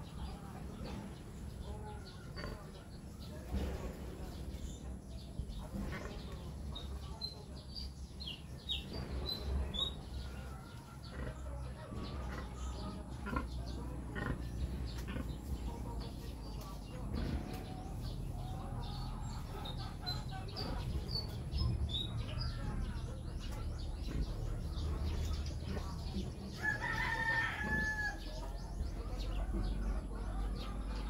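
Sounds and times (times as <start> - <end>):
chickens clucking: 0.0 - 31.0
small birds chirping: 0.0 - 31.0
steady low rumble: 11.1 - 26.9.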